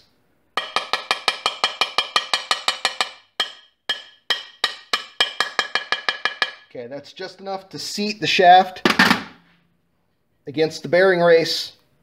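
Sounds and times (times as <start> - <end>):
hammer tapping steel shaft: 0.6 - 6.7.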